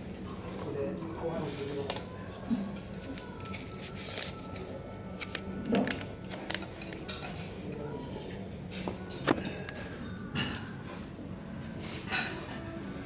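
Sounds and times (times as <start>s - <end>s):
tableware clicking and clinking: 2.7s - 11.1s, 11.8s - 13.0s.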